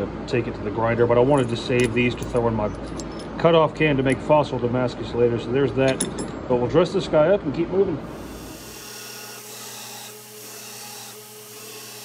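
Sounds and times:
motor hum: 8.0 - 12.0
belt grinder grinding steel: 8.1 - 12.0.

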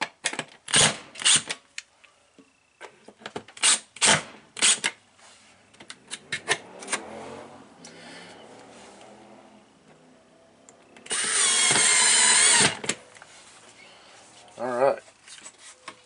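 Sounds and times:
drill-driver mechanical clacks: 11.0 - 13.0
drill motor running: 11.1 - 12.8.

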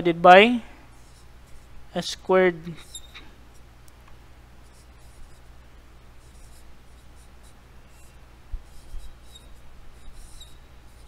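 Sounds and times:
steady low hum: 0.0 - 11.0
marker scratching on whiteboard: 0.9 - 1.7, 2.7 - 3.6, 4.6 - 5.5, 6.2 - 11.0
faint high marker squeak: 2.8 - 3.4, 7.2 - 11.0.

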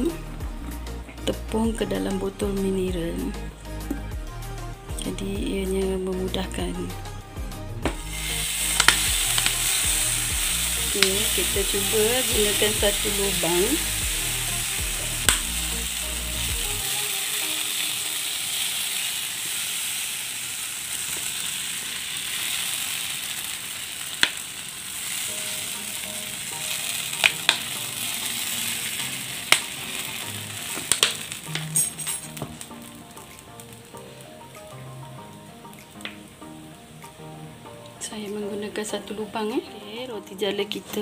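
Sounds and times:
batter sizzling on hot pan: 7.7 - 39.6.

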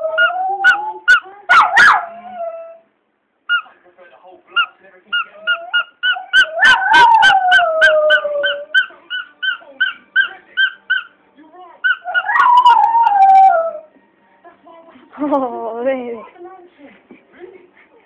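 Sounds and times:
dog howling: 0.0 - 2.9, 5.3 - 11.1, 11.9 - 13.9
squeaky dog toy squeezed: 8.1 - 11.1.

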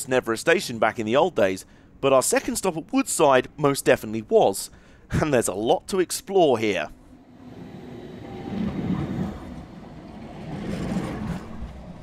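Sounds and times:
tram wheels rumbling on rails: 7.1 - 12.0.

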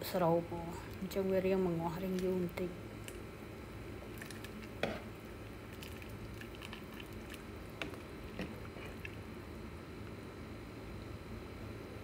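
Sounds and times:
spoon stirring broth sloshing: 4.0 - 9.2.

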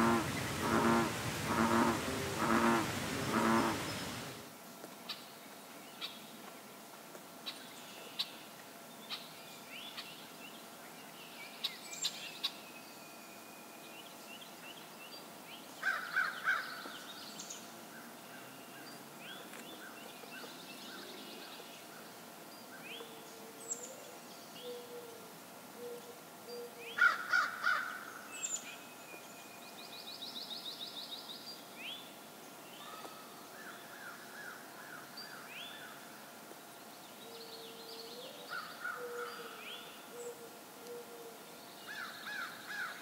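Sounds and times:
birds chirping: 0.0 - 4.4
dove cooing: 0.0 - 4.4, 38.2 - 41.4
harsh bird calls: 0.0 - 4.4.

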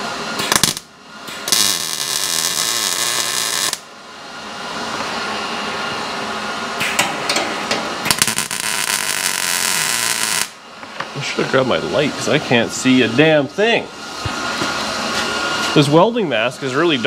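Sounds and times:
welding arc crackling: 0.4 - 3.9, 8.1 - 10.6.

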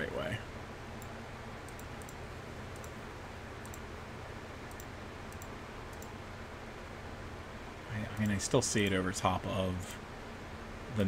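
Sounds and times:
low hum and hiss: 0.0 - 11.0
computer mouse clicks: 1.0 - 3.0, 3.6 - 3.9, 4.6 - 6.2, 8.1 - 9.0.

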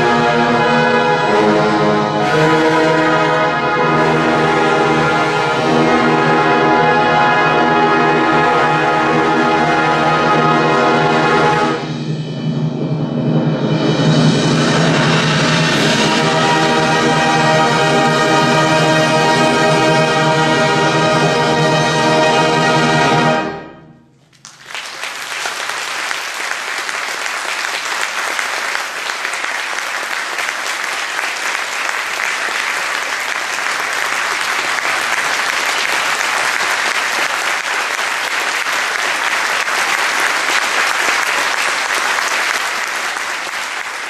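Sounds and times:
brass band loud chord: 0.0 - 13.0, 13.6 - 24.2
audience applause: 24.2 - 44.0.

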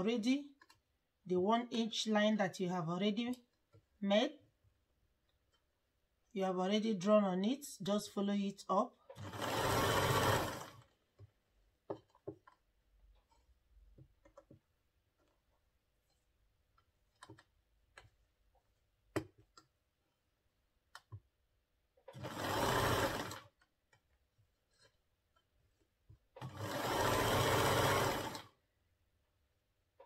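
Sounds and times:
sewing machine stitching: 9.1 - 11.0, 22.0 - 23.6, 26.3 - 28.6.

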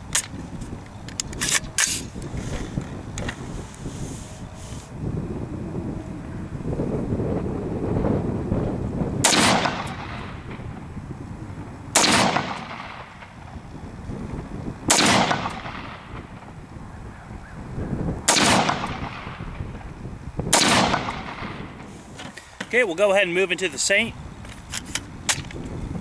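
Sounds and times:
rifle shots with echo: 9.2 - 10.6, 11.9 - 13.4, 14.9 - 16.4, 18.3 - 19.4, 20.5 - 21.8.

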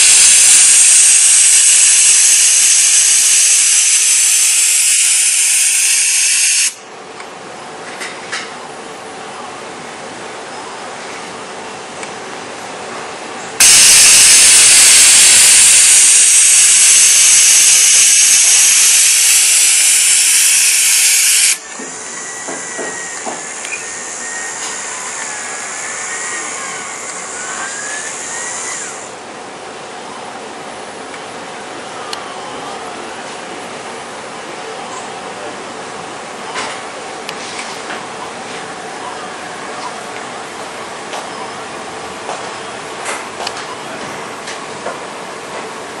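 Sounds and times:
compressed air hiss: 0.0 - 6.8, 13.6 - 29.2
servo motors whining: 13.7 - 29.1.

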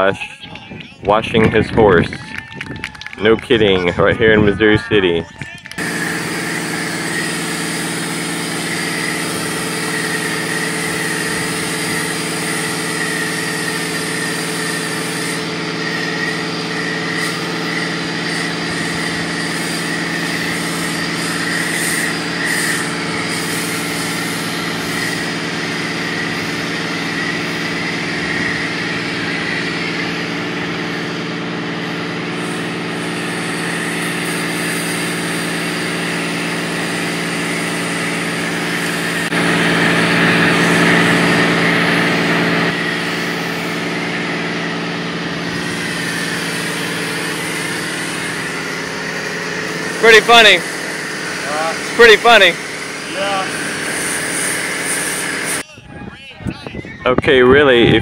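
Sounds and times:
steady motor hum: 0.0 - 58.0
hiss: 5.9 - 30.1, 32.4 - 39.3, 45.5 - 55.6.

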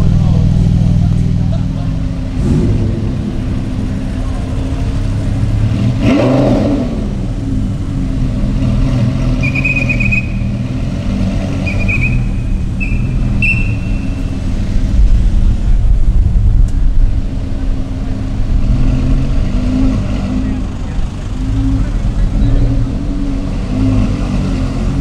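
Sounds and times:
car engines running: 0.0 - 25.0
passing street traffic: 0.0 - 25.0
whistle blasts: 9.4 - 10.6, 11.6 - 14.2.

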